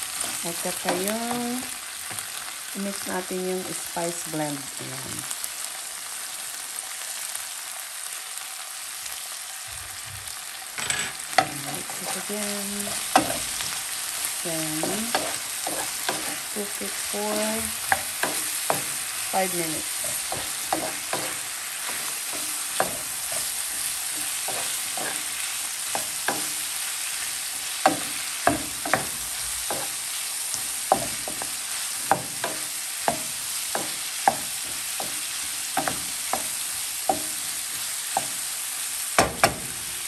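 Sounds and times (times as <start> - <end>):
food sizzling in a frying pan: 0.0 - 40.0
spatula scraping a pan: 10.8 - 38.4.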